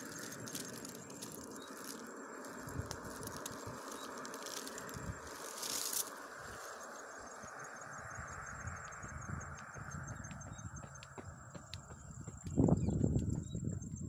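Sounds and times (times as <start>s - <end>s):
rustling vine leaves: 0.0s - 7.8s
insect chirping: 0.0s - 14.0s.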